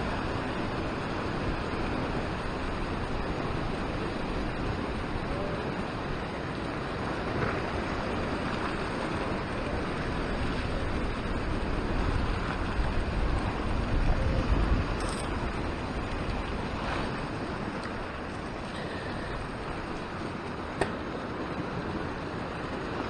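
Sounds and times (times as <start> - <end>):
surf washing against rocks: 0.0 - 23.0
wind rumbling on microphone: 0.0 - 23.0.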